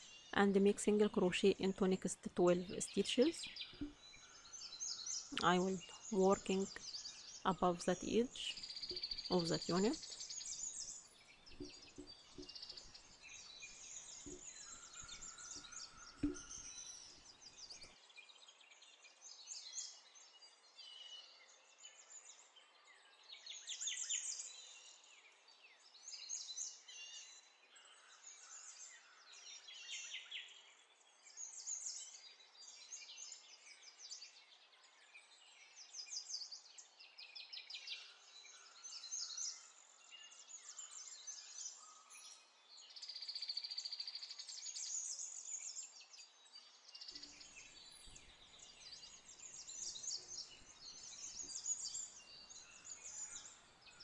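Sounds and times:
birds chirping and trilling: 0.0s - 22.4s, 37.8s - 54.0s
soft taps: 11.6s - 12.9s, 14.2s - 14.5s, 15.6s - 16.5s.

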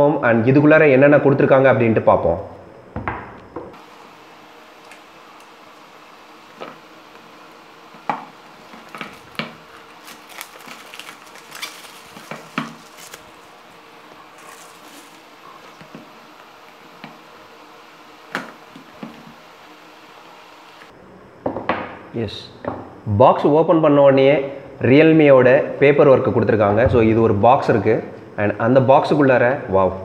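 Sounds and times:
crinkly packaging rustles: 8.5s - 15.9s.

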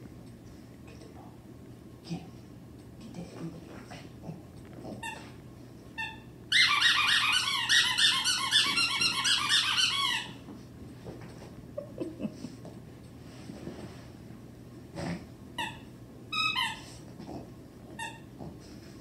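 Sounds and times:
squeaky toy ball squeaking: 6.0s - 10.4s, 15.6s - 16.8s.

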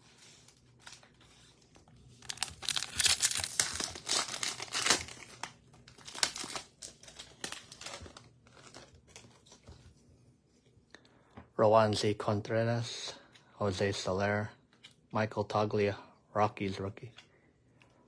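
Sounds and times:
wrapper tearing and crinkling: 2.1s - 9.5s.

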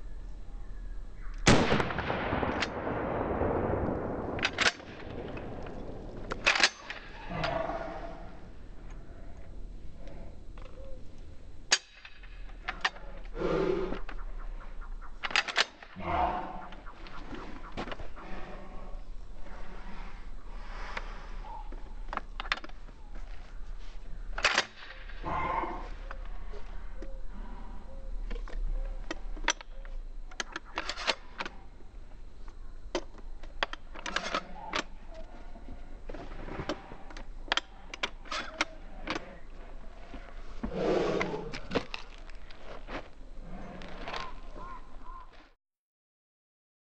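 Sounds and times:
shotgun blast echoing: 1.4s - 7.1s
shotgun metallic clicks: 3.8s - 7.7s, 15.1s - 16.0s, 24.4s - 25.2s, 28.3s - 31.6s.

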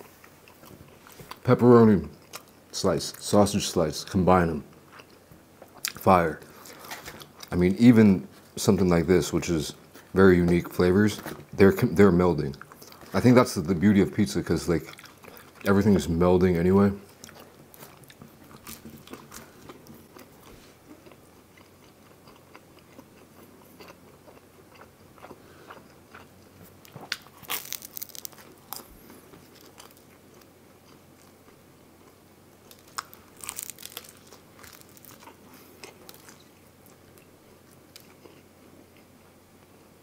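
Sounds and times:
quiet chewing: 4.7s - 7.6s, 12.5s - 13.2s, 14.8s - 15.7s, 17.0s - 39.9s
crunchy bites into pizza crust: 17.3s - 31.4s, 32.0s - 37.3s.

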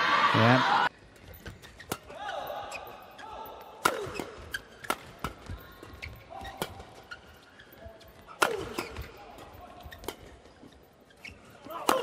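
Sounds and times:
shoes squeaking on court: 0.9s - 12.0s
rackets striking shuttlecock: 1.4s - 7.2s, 7.8s - 10.6s, 11.7s - 12.0s.

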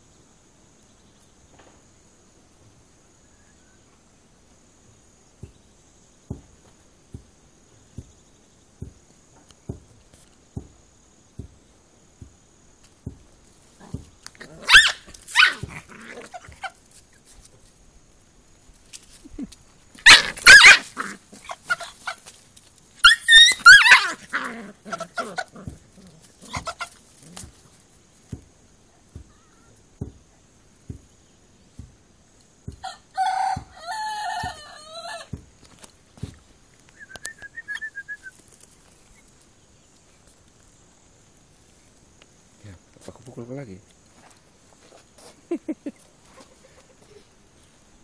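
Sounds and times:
light scuffling ticks: 18.4s - 23.1s, 35.6s - 47.8s
rooster squawking shrilly: 20.0s - 22.2s, 23.0s - 25.2s, 32.8s - 35.3s.

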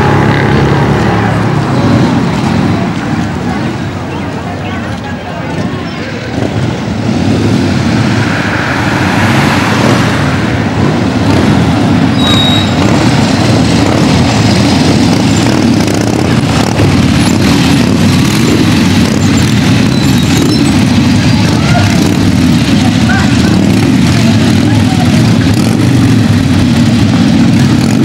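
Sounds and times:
motorcycle engines passing: 0.0s - 28.0s.

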